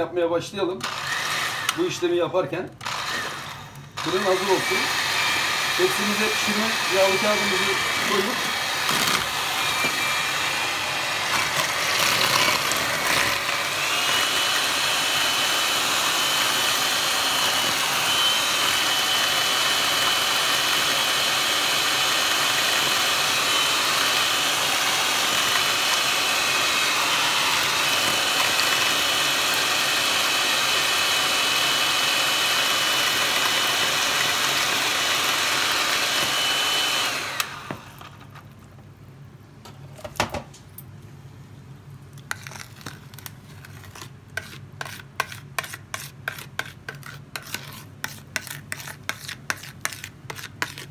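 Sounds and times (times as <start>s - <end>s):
electric hand mixer whirring: 0.8s - 2.0s, 2.8s - 38.2s.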